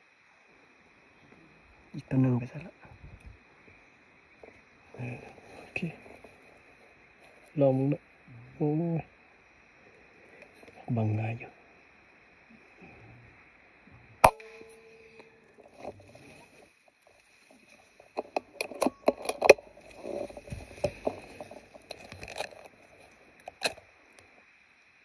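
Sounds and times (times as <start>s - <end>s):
air rifle shot: 14.2s - 15.0s
rifle handling clicks and knocks: 18.1s - 22.8s.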